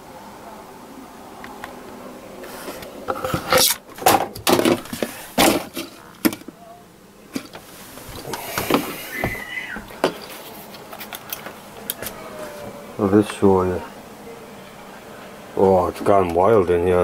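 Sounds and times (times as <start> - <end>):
camera handling rubbing: 10.0 - 12.2.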